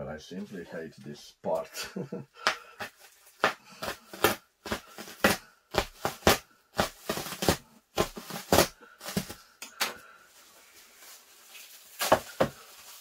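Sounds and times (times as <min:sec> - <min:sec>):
plastic wrapping crinkling: 0:02.8 - 0:13.0.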